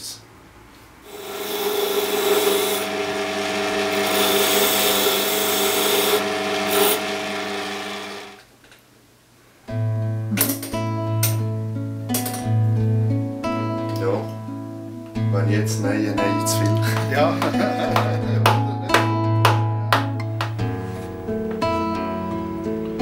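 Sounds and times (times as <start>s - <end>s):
key-cutting machine grinding: 1.1s - 8.4s
acoustic guitar music: 9.7s - 23.0s.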